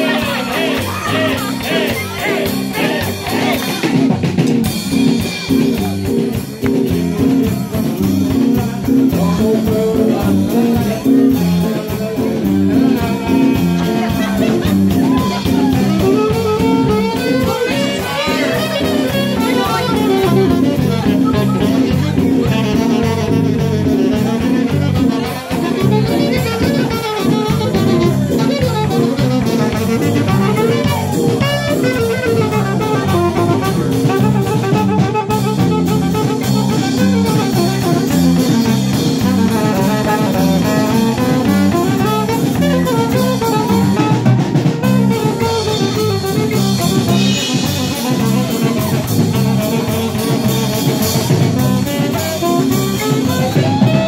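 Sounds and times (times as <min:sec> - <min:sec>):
drum kit: 0:00.0 - 0:54.0
guitar: 0:00.0 - 0:54.0
saxophone melody: 0:00.0 - 0:54.0.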